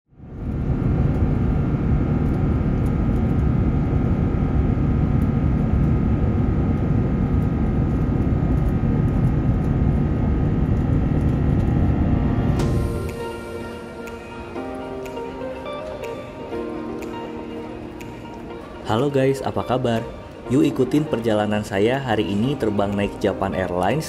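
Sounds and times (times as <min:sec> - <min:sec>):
aircraft cabin rumble: 0:00.3 - 0:12.8.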